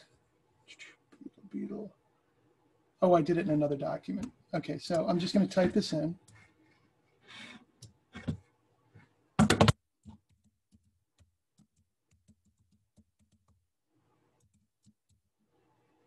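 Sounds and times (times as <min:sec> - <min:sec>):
computer keyboard typing: 0:09.4 - 0:13.6.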